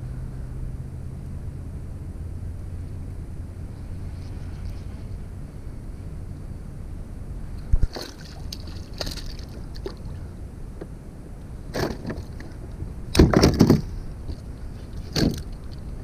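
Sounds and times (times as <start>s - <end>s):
wind rumble on microphone: 0.0s - 16.0s
water splashing beside boat: 7.7s - 11.0s, 11.7s - 16.0s
gear knocking against plastic hull: 13.1s - 14.0s.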